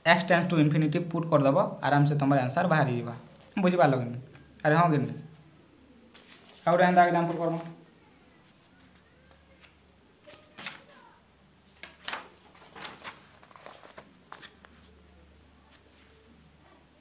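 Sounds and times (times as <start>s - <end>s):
paper rustling and scraping: 6.1s - 7.8s, 9.6s - 11.0s, 11.6s - 15.0s.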